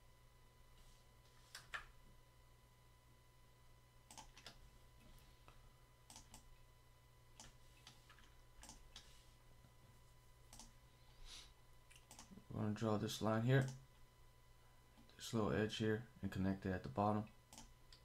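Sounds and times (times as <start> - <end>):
low steady hum: 0.0 - 18.0
mouse and keyboard clicks: 1.5 - 1.9, 6.1 - 6.5, 7.4 - 9.1, 11.9 - 12.3.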